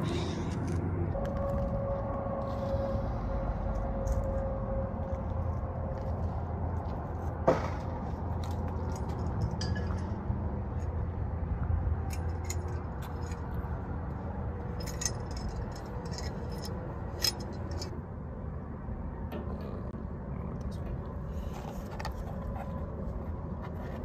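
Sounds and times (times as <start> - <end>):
steady low rumble: 0.0 - 24.0
camping gear clinking and scraping: 5.1 - 11.0, 12.0 - 18.0, 21.3 - 24.0.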